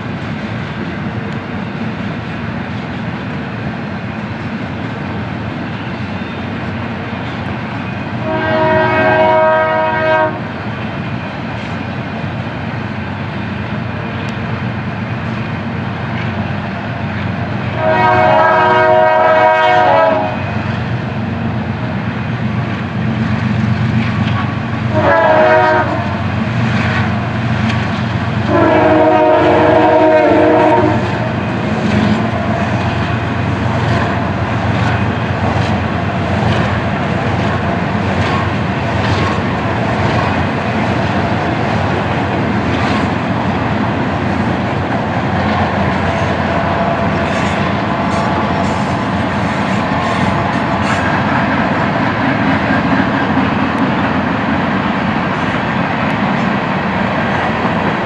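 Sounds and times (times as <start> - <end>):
freight train rumble and clatter: 0.0 - 58.0
locomotive air horn: 8.2 - 10.5, 17.7 - 20.6, 24.9 - 26.2, 28.4 - 31.4.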